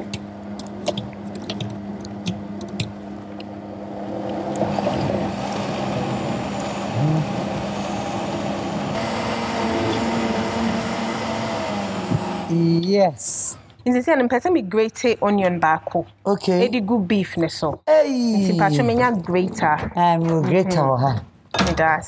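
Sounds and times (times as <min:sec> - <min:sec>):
blender whirring: 0:04.6 - 0:12.6.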